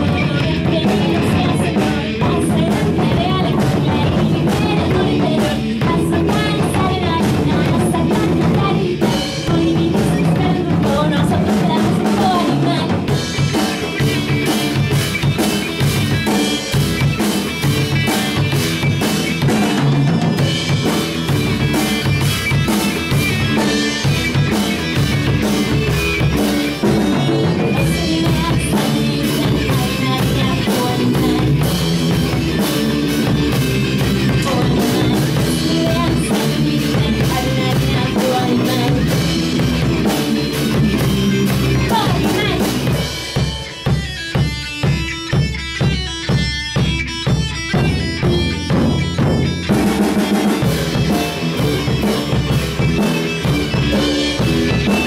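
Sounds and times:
person singing into a microphone: 0:00.0 - 0:13.4, 0:26.8 - 0:43.5
drum kit: 0:00.0 - 0:55.0
electric guitar: 0:00.0 - 0:55.0.

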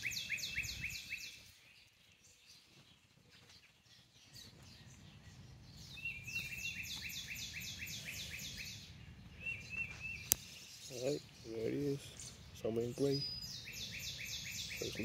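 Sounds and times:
songbird singing high notes: 0:00.0 - 0:01.4, 0:05.8 - 0:15.0.

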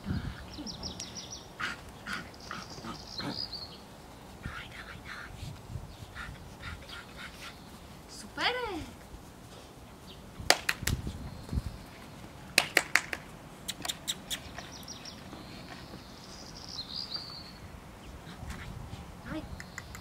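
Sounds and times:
quick sharp clicks: 0:10.5 - 0:11.0, 0:12.6 - 0:14.7, 0:19.6 - 0:20.0.

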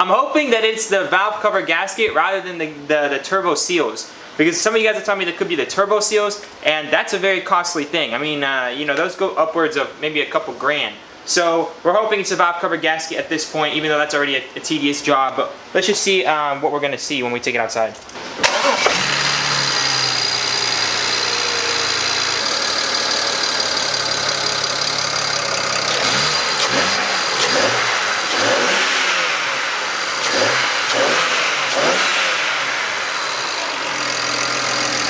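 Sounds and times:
car engine idling and revving: 0:18.2 - 0:35.0.

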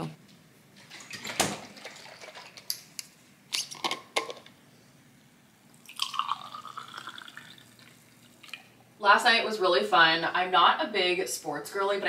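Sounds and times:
juice pouring into glass: 0:05.7 - 0:08.7.

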